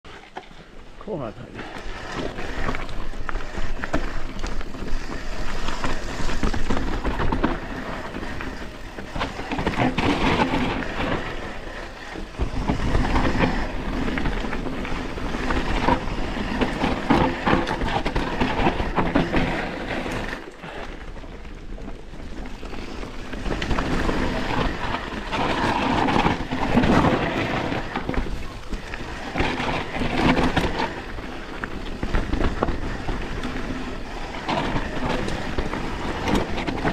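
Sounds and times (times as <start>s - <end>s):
bike rattling: 0.1s - 36.9s
bike tyres rolling over dirt: 0.1s - 36.9s
wind on microphone: 1.6s - 20.8s.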